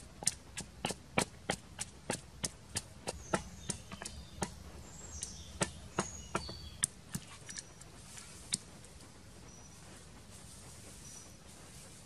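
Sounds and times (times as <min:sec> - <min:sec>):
wooden pestle pounding in mortar: 0:00.0 - 0:04.6, 0:05.2 - 0:07.3.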